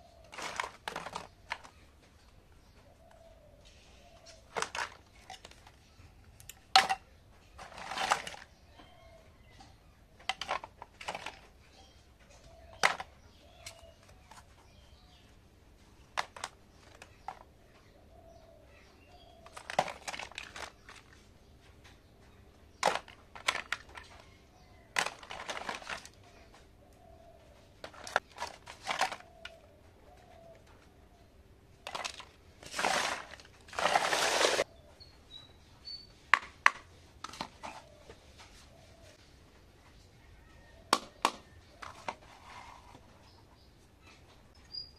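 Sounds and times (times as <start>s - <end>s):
plastic toy pieces clattering: 0.3s - 1.8s, 4.4s - 5.8s, 6.5s - 8.6s, 10.2s - 11.7s, 12.7s - 13.8s, 16.1s - 17.4s, 19.4s - 21.2s, 22.8s - 24.2s, 24.9s - 26.2s, 27.8s - 29.6s, 31.8s - 34.6s
short scraping rustles: 32.6s - 34.6s.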